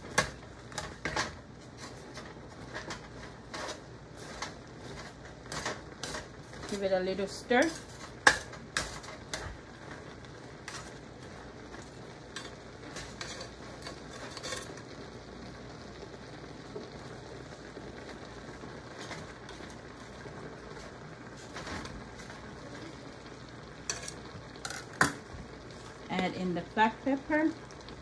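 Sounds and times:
spoon scraping metal pot: 0.7s - 6.9s, 10.6s - 11.0s, 12.3s - 14.8s, 23.9s - 25.0s.

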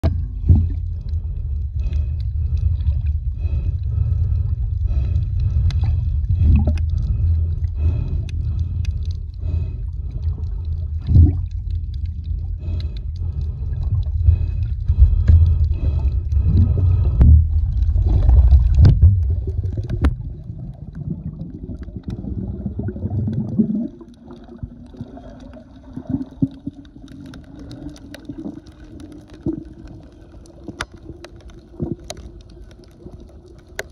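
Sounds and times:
steady droning hum: 0.0s - 20.5s
muffled underwater rumble: 0.0s - 33.9s.

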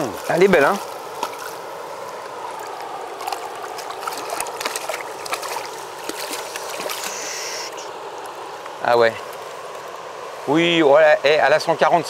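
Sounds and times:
river running over stones: 0.0s - 12.0s
fish splashing in water: 0.3s - 9.7s.

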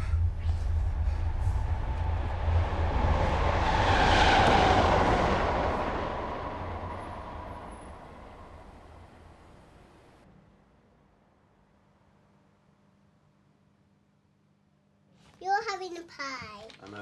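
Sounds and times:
steady low hum: 0.0s - 4.2s
vehicle passing: 0.0s - 10.2s.

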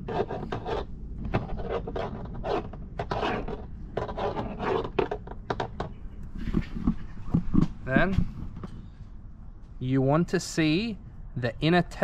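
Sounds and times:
tool scraping and rubbing hose end: 0.0s - 5.2s.

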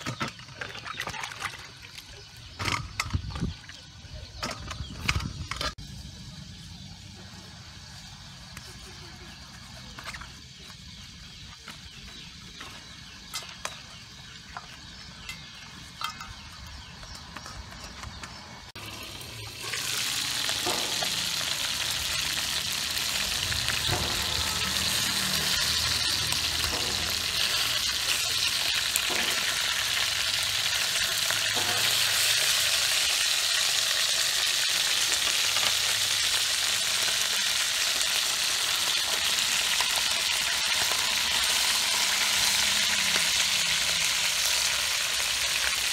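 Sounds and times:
fish sizzling in a pot: 18.7s - 45.9s.

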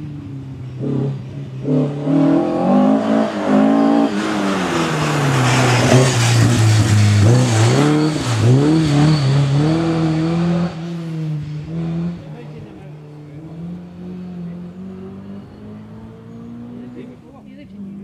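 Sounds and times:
rally car engine revving: 0.0s - 18.0s
rush of broad noise: 2.8s - 11.2s.

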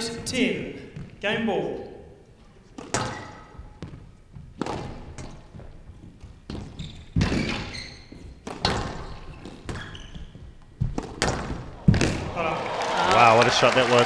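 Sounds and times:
squash ball hits: 2.7s - 12.5s.

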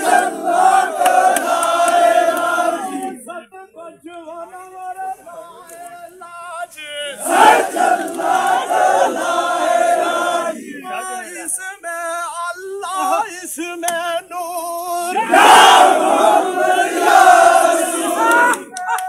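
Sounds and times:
loud massed cry: 0.0s - 3.2s, 7.2s - 11.1s, 15.1s - 19.0s
crowd of men chanting: 0.0s - 11.6s, 14.9s - 19.0s
single voices holding sung notes: 0.0s - 19.0s.

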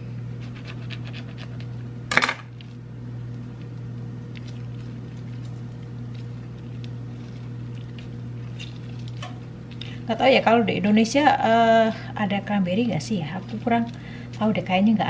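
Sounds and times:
steady low hum: 0.0s - 15.0s
knife set down clatter: 2.1s - 2.5s
juice dripping: 2.6s - 10.2s, 12.9s - 14.8s.

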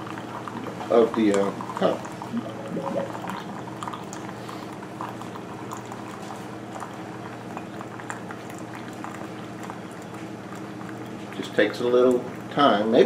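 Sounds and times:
coffee bubbling and gurgling: 0.0s - 13.0s
coffee maker humming: 0.0s - 13.0s.

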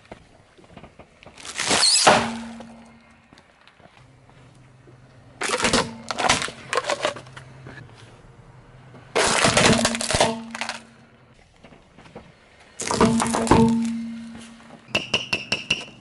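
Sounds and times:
plastic toys crunching and snapping: 1.3s - 2.5s, 5.4s - 7.4s, 9.1s - 11.0s.

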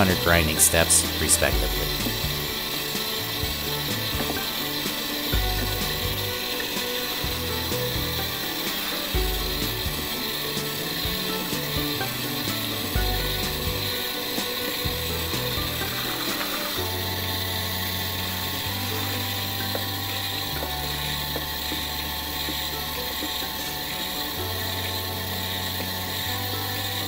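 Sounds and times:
background music with low notes: 0.0s - 27.0s.

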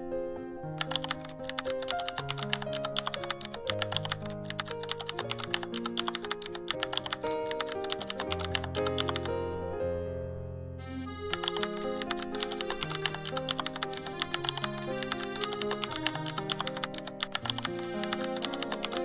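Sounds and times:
rapid keyboard typing: 0.8s - 9.3s, 11.2s - 19.0s
background music of held notes: 10.8s - 19.0s.

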